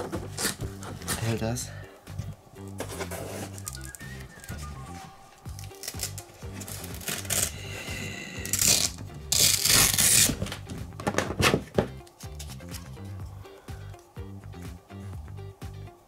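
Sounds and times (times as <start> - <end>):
background music: 0.0 - 16.0
hook-and-loop fastener ripping: 0.2 - 1.3, 5.5 - 7.6, 8.4 - 12.9.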